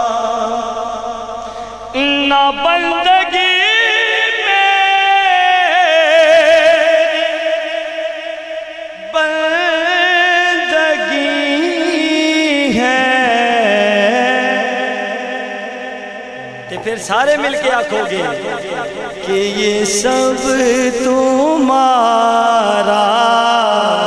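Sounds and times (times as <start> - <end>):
man singing melismatic phrases: 1.9 - 7.2, 16.4 - 24.0.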